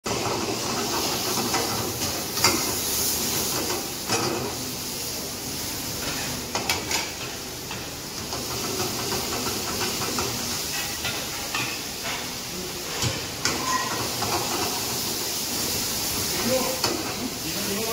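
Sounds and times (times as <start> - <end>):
food sizzling in hot oil: 0.1 - 17.9
metal ladle scraping a pan: 13.4 - 14.6.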